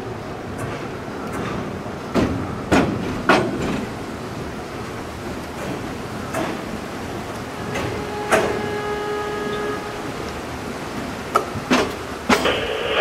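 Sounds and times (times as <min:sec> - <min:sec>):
wheels clicking on track: 0:00.0 - 0:12.6
train rumbling on bridge: 0:00.0 - 0:13.0
steady pitched tone: 0:07.5 - 0:10.5
radio crackling: 0:12.3 - 0:13.0.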